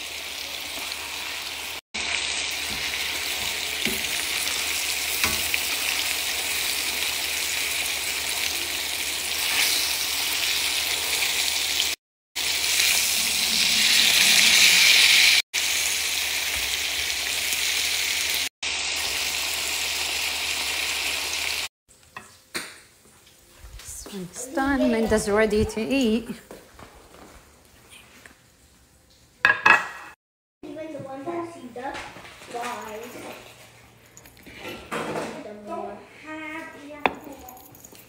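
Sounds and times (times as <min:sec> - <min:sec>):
steaks sizzling in hot fat: 0:00.0 - 0:21.7.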